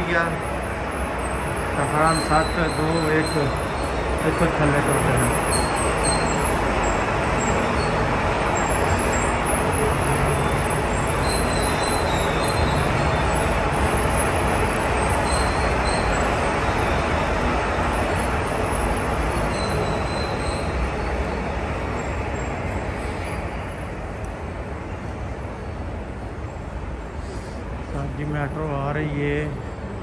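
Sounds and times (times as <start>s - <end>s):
high wheel squeal: 0.0s - 24.0s
metro train rail noise: 0.0s - 30.0s.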